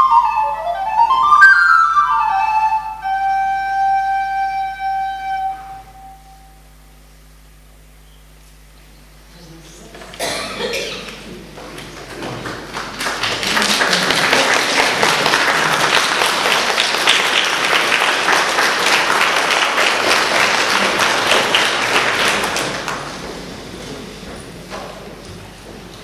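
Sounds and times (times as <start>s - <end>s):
crowd applauding: 11.1s - 23.6s.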